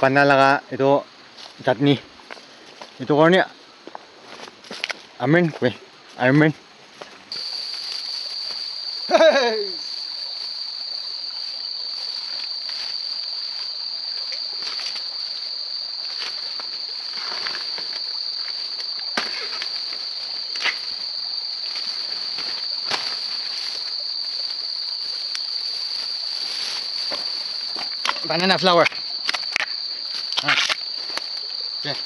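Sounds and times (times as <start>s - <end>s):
insects droning: 0.0s - 32.0s
footsteps rustling through grass: 3.6s - 9.0s, 10.2s - 28.4s.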